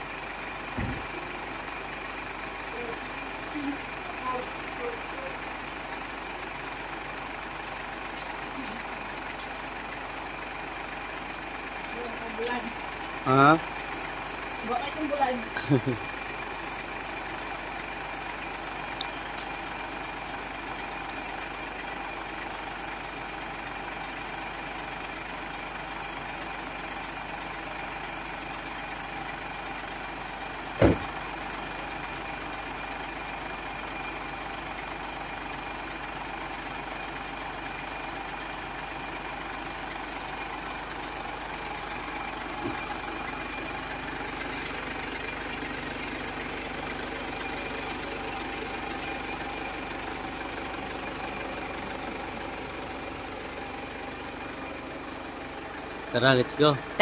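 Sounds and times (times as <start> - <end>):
engine idling hum: 0.0 - 57.0
sharp knock: 30.8 - 31.1.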